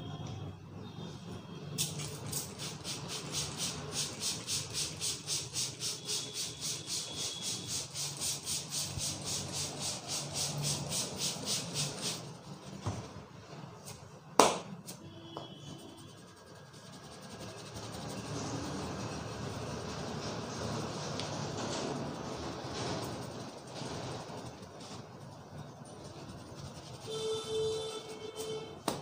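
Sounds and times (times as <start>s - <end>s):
sharp loud snap: 14.4s - 14.8s.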